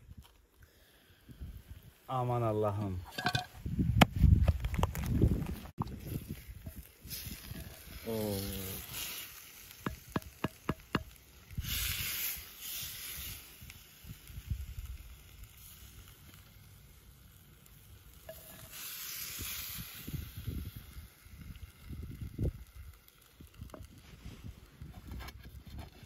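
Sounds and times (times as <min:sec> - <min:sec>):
stew sizzling: 0:05.9 - 0:26.0
wooden spoon scraping a pot: 0:06.6 - 0:10.8, 0:18.3 - 0:18.8.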